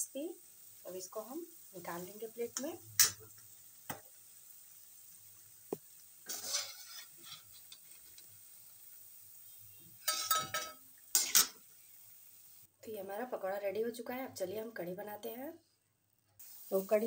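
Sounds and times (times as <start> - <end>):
faint oil sizzle: 0.0 - 17.0
steel spoon scraping iron pan: 6.2 - 8.2, 10.0 - 11.6.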